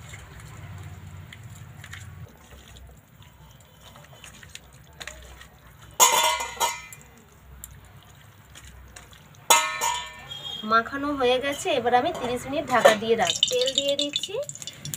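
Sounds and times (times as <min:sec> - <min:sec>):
hand squelching raw chicken: 0:00.0 - 0:06.0, 0:07.0 - 0:09.6.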